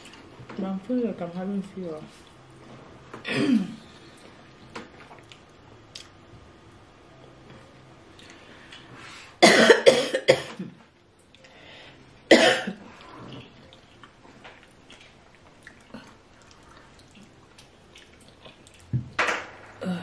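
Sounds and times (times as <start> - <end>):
woman coughing: 3.3 - 3.8, 9.4 - 10.8, 12.3 - 12.8.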